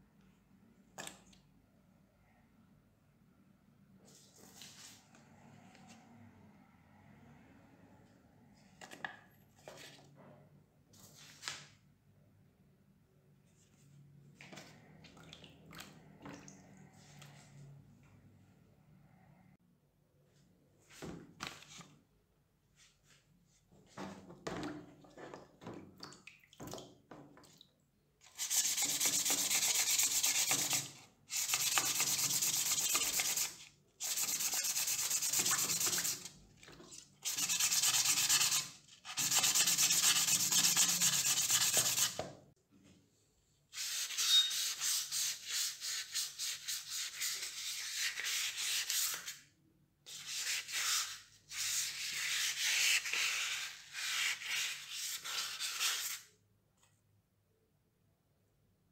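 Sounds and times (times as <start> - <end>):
wet sandpaper rubbing metal: 28.4 - 36.3, 37.2 - 42.2.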